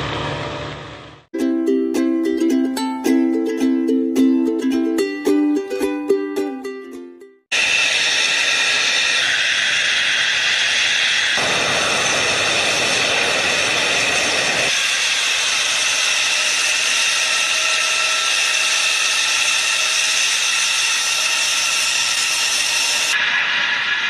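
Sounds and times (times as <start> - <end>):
jet engines whining: 0.0 - 1.3, 7.5 - 24.0
low jet rush: 7.5 - 15.4.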